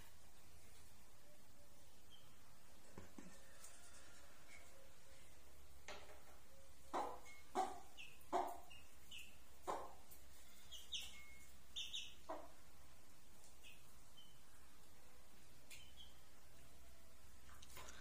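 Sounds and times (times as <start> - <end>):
chicks peeping: 6.3 - 12.7, 13.3 - 14.9, 15.7 - 16.7.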